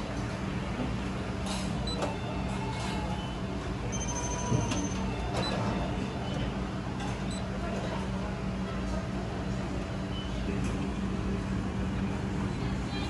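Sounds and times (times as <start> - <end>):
short electronic beeps: 3.9 - 5.6.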